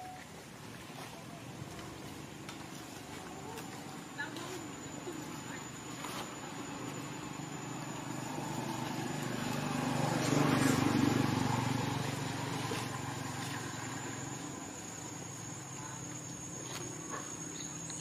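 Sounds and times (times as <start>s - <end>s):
vehicle engine passing by: 6.1s - 16.1s.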